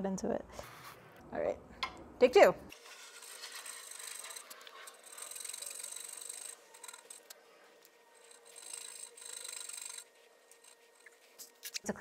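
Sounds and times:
coping saw cutting wood: 2.7 - 7.4, 8.0 - 11.1.

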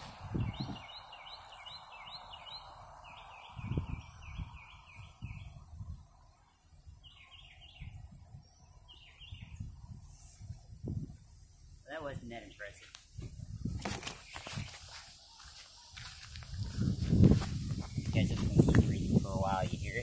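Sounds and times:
songbird chirping: 0.0 - 20.0
soft hiss: 9.5 - 20.0.

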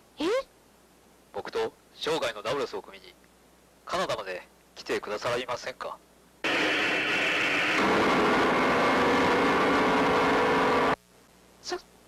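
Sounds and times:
synthesized dramatic sting: 6.5 - 11.0.

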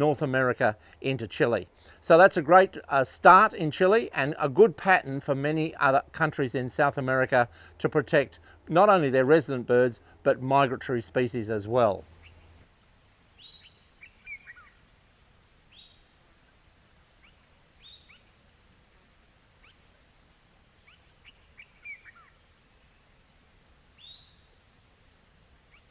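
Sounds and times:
insects chirping: 12.0 - 25.9
bird downward-sliding calls: 13.3 - 14.8, 19.5 - 22.8.

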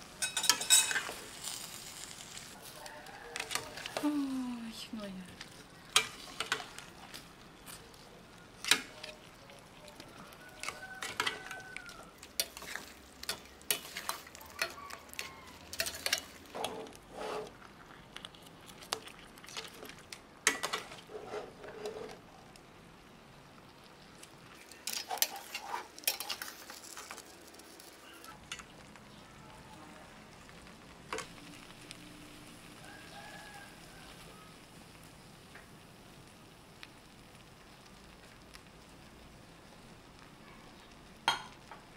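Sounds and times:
low sizzle: 0.0 - 41.9
metal utensil scraping a steel pan: 0.2 - 1.2, 12.4 - 17.5, 20.5 - 22.2, 24.8 - 26.6.

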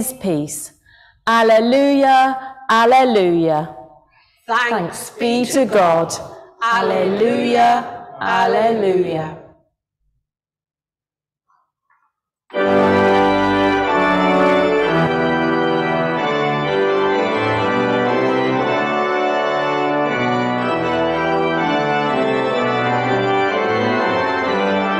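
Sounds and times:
organ playing sustained chords: 5.0 - 9.1, 12.5 - 24.9.

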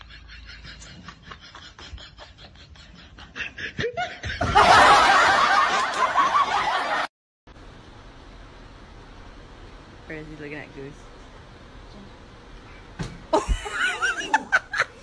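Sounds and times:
person laughing hard: 0.0 - 6.6, 13.4 - 15.0.

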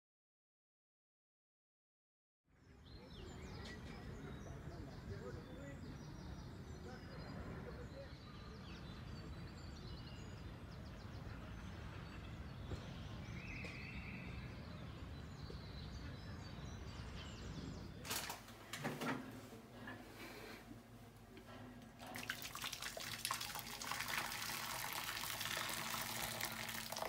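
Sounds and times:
small birds chirping: 2.7 - 18.0.

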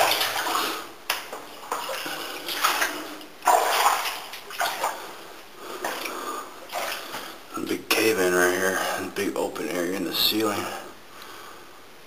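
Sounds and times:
footsteps splashing through water: 0.0 - 5.1, 5.8 - 7.3.

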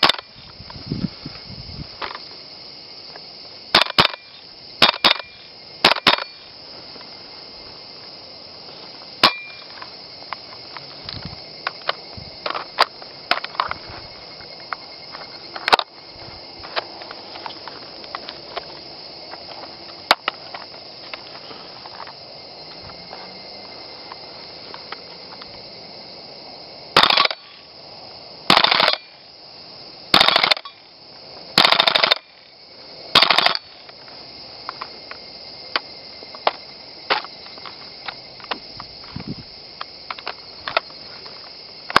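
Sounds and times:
airsoft rifle full-auto bursts: 27.0 - 27.4, 28.5 - 29.0, 30.2 - 30.6, 31.6 - 32.2, 33.2 - 33.6.

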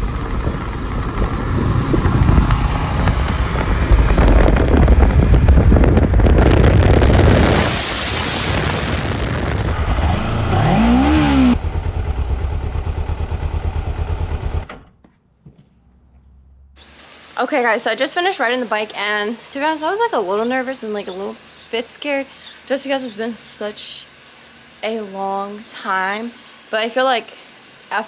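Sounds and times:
engine revving: 0.0 - 14.8
road and wind rush: 0.0 - 14.8
motorcycle engine: 0.0 - 16.8.

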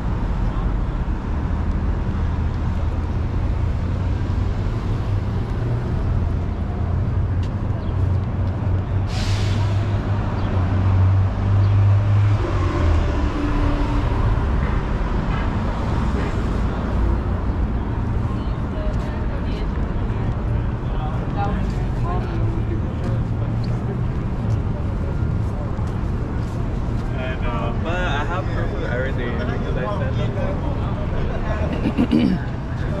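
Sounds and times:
city street traffic: 0.0 - 33.0
heavy vehicle engine rumbling: 0.0 - 33.0
air brakes hissing: 9.0 - 10.0.

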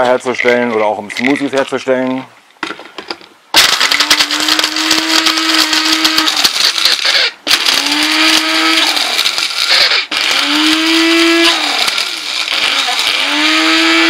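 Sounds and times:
electric mixer grinding beans: 3.6 - 14.0.

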